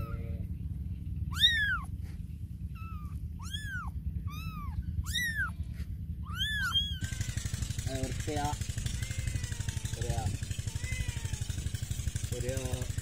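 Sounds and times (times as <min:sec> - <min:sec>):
kittens mewing: 0:00.0 - 0:00.5, 0:01.2 - 0:07.6, 0:08.5 - 0:11.7
low background rumble: 0:00.0 - 0:13.0.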